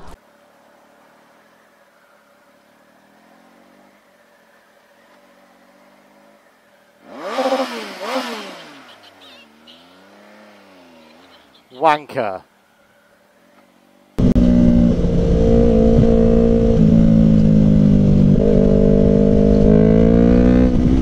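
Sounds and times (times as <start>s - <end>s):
motorcycle engine revving: 7.0s - 11.6s, 14.2s - 21.0s.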